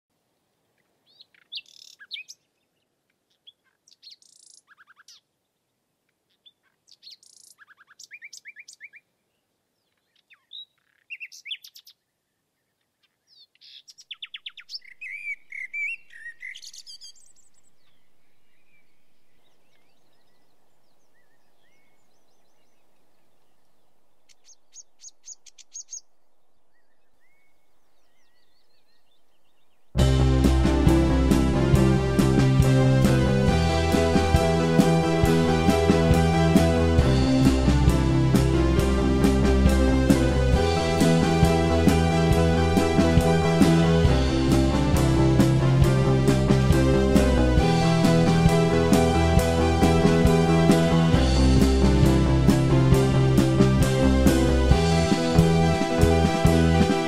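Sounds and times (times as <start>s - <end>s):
faint steady background noise: 0.1s - 16.1s
songbirds chirping and trilling: 0.4s - 57.0s.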